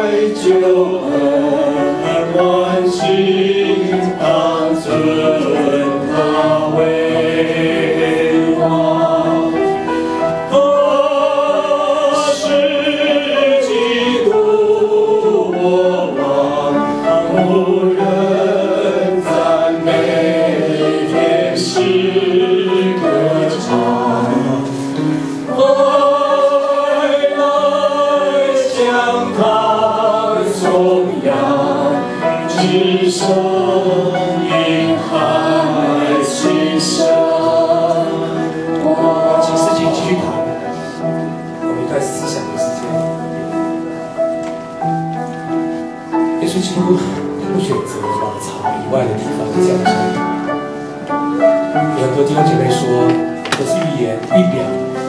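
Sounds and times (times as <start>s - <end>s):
vocal group singing through pa: 0.0s - 43.3s.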